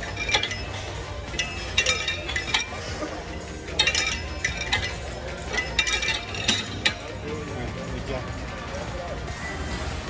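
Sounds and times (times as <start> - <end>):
metal clinks from weight stack: 0.0 - 7.2.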